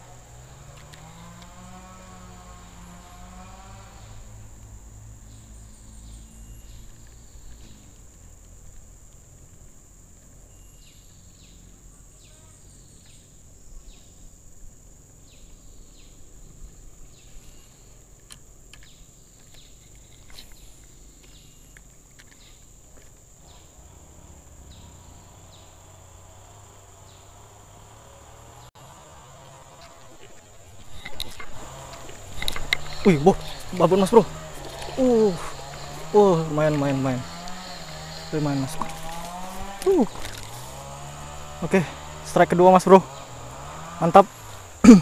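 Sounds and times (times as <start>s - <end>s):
insects droning: 0.0s - 45.0s
faint clicks: 6.8s - 10.4s.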